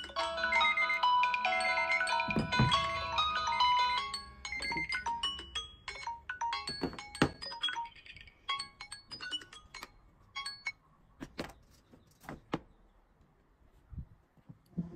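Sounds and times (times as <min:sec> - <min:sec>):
phone alarm chiming ringtones: 0:00.0 - 0:10.9
phones being handled: 0:02.1 - 0:03.6, 0:06.5 - 0:08.2, 0:11.2 - 0:12.8.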